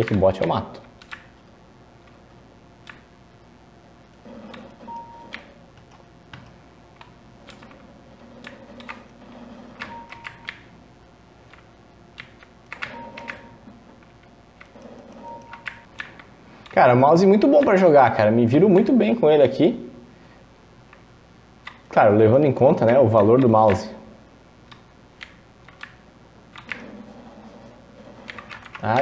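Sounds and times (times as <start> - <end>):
computer keyboard clicks: 0.0 - 1.3, 8.4 - 9.2, 9.8 - 10.7, 14.6 - 16.8, 24.7 - 26.9, 28.2 - 29.0
faint video game sounds: 0.0 - 29.0.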